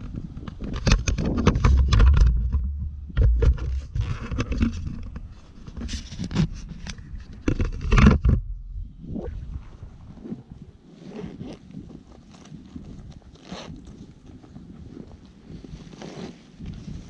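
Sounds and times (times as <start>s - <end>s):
camera handling scraping and knocks: 0.4s - 8.7s
low handling rumble: 1.3s - 5.8s, 6.4s - 10.9s.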